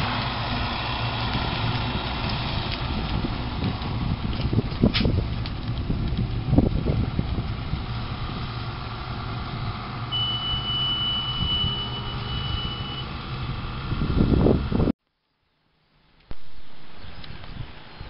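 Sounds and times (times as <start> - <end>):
low buffeting: 0.0 - 14.9
thin steady high tone: 10.1 - 13.0.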